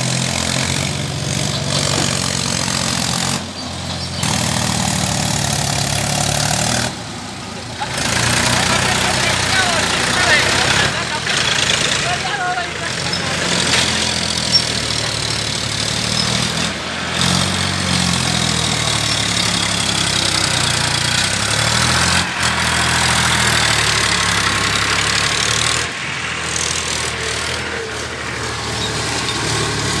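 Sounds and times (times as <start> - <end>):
tractor diesel engine under load: 0.0 - 30.0.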